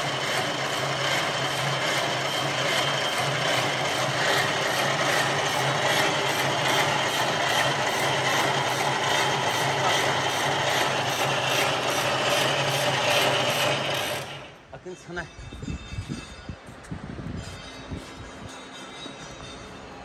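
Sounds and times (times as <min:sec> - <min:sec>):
low motor hum: 0:00.0 - 0:14.7
wire machine mechanical rhythm: 0:00.0 - 0:14.7.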